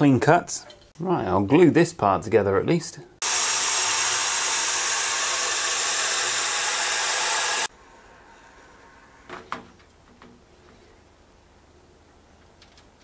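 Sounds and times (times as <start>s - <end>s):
laser cutter airy rush: 3.2s - 7.7s.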